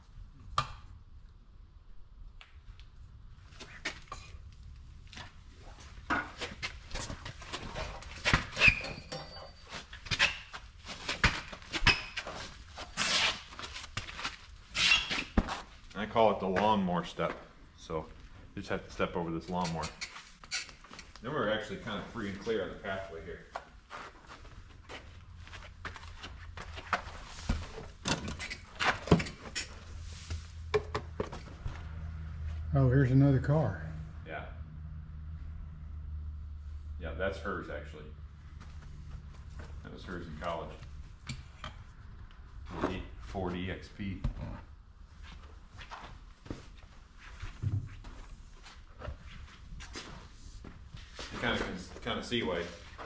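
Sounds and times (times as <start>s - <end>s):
footsteps and scuffs: 9.7s - 17.5s, 23.3s - 28.0s, 45.2s - 53.0s
footsteps: 19.5s - 28.0s.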